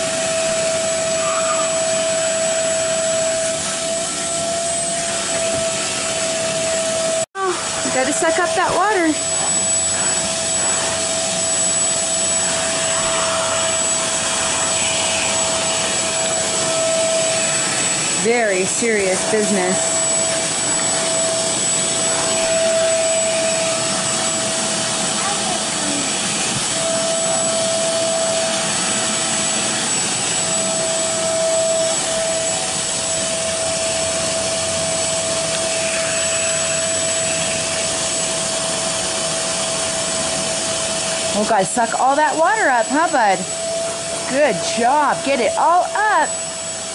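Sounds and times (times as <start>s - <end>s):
suction motor whining: 0.0s - 46.9s.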